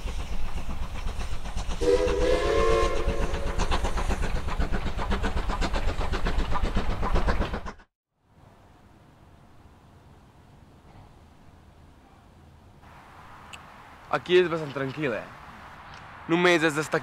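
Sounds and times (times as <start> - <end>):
train wheels clattering: 0.0 - 7.9
train whistle: 1.8 - 3.7.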